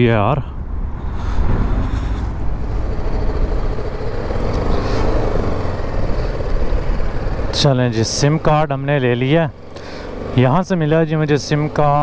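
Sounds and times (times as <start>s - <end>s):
street traffic: 0.0s - 12.0s
wind rumbling on microphone: 0.5s - 4.5s
motorcycle engine running: 1.5s - 12.0s.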